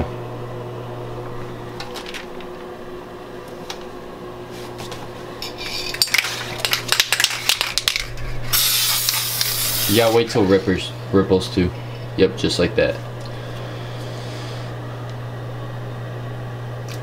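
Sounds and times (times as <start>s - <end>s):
steady low hum: 0.0s - 17.0s
spray hissing: 8.5s - 10.6s.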